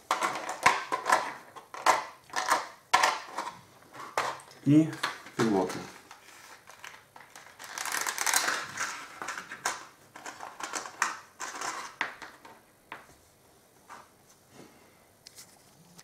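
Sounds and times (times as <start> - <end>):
plastic blister pack crackling: 4.4 - 12.0.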